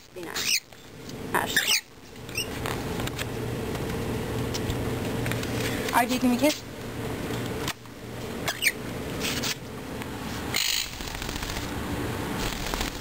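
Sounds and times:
parrot harsh squawk: 0.4s - 0.7s, 1.5s - 2.5s, 8.4s - 9.6s, 10.5s - 10.9s.

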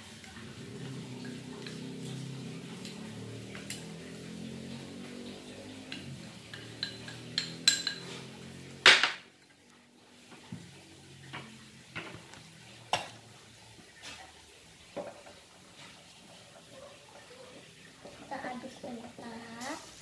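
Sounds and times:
glass bowls and spoon clinking: 1.1s - 9.6s
dishes clattering on table: 5.9s - 9.3s, 15.0s - 15.4s.

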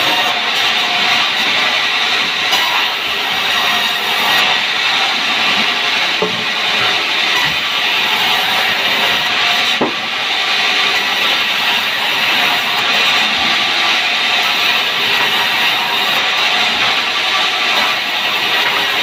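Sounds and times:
knock: 9.8s - 10.0s.

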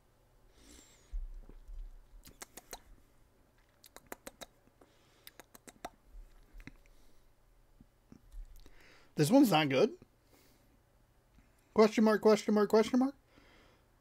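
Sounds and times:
wet lip and tongue clicks: 2.2s - 3.0s, 3.6s - 7.0s.

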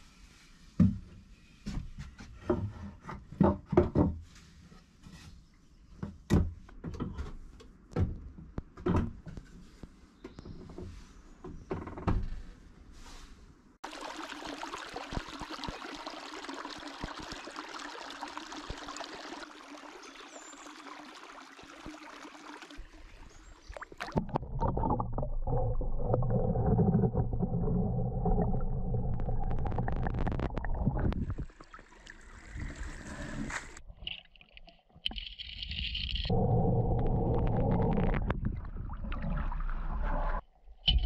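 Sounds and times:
stream water running: 13.8s - 36.4s
muffled underwater scraping: 23.9s - 31.5s, 35.8s - 40.4s.

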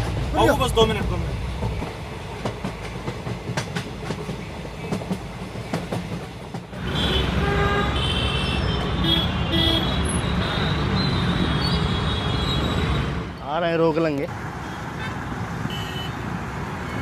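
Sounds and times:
freight train clacking over rails: 0.0s - 7.8s
motorcycle and traffic engines: 6.7s - 17.0s.

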